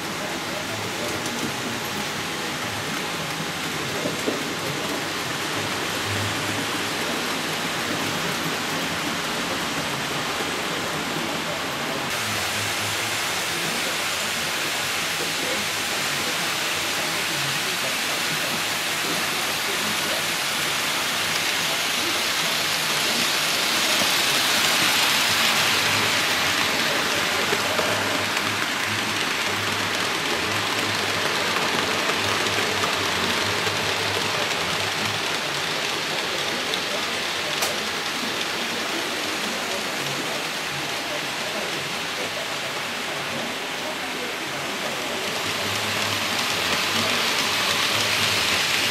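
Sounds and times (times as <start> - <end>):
model train wheels rattling on rails: 13.5 - 48.9.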